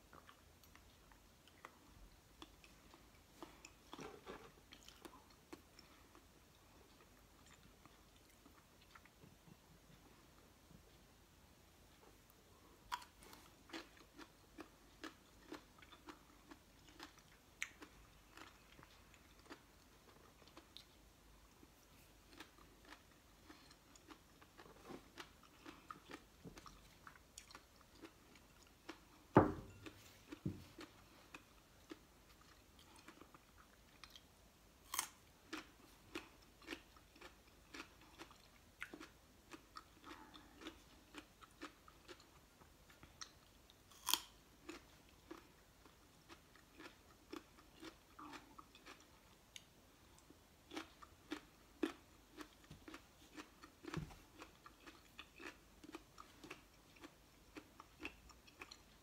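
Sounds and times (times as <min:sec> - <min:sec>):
chewing raw vegetables: 0:00.0 - 0:10.9, 0:11.8 - 0:59.0
dull thump: 0:29.4 - 0:29.7.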